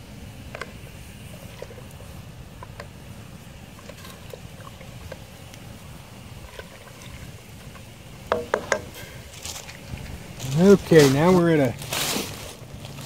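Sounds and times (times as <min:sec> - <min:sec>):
campfire crackling and popping: 0:00.0 - 0:13.0
pot boiling with low rumble: 0:00.0 - 0:13.0
sharp ringing knocks: 0:08.3 - 0:09.0.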